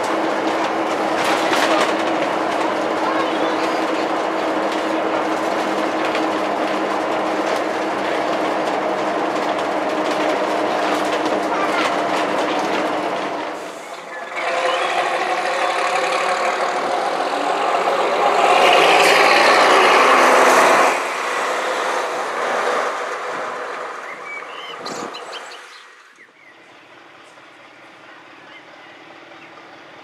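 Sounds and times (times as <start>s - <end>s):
bus diesel engine passing: 0.0s - 30.0s.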